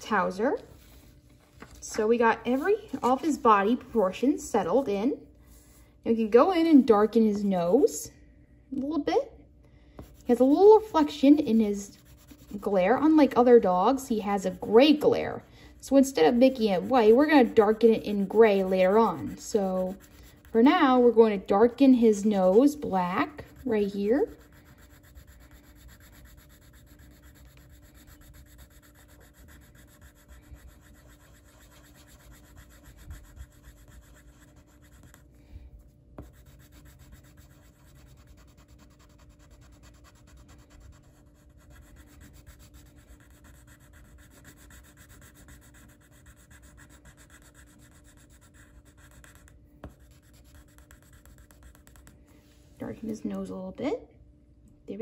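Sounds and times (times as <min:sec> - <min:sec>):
pencil scratching on paper: 0:10.0 - 0:21.0, 0:21.7 - 0:35.2, 0:36.2 - 0:52.2.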